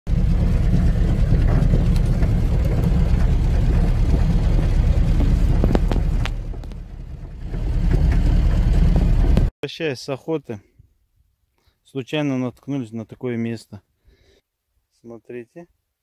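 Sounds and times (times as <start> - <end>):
knocks and rattles from bumps: 0.1 - 9.5
vehicle rumble on rough ground: 0.1 - 9.5.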